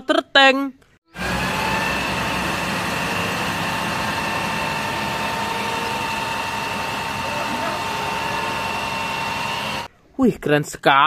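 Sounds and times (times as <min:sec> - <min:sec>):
truck engine hum: 0:01.1 - 0:09.9
high whine: 0:01.2 - 0:09.9
water jet hissing: 0:01.2 - 0:09.9.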